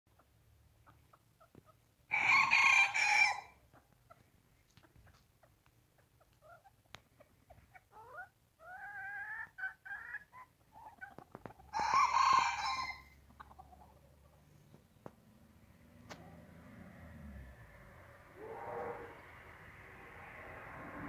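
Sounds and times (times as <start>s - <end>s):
hens clucking: 0.1s - 2.9s, 3.7s - 15.2s
rooster crowing: 2.1s - 3.6s, 11.7s - 13.1s, 18.4s - 19.2s.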